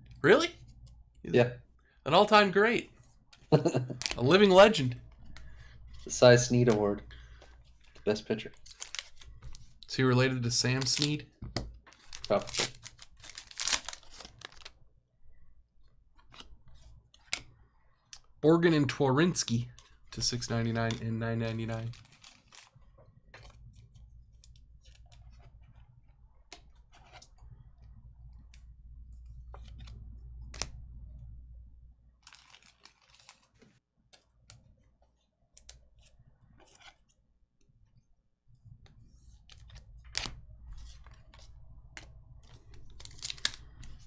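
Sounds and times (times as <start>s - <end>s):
trading cards being handled: 2.1s - 14.8s, 15.8s - 31.4s, 32.1s - 37.2s, 38.7s - 44.0s
low steady hum: 23.0s - 32.3s.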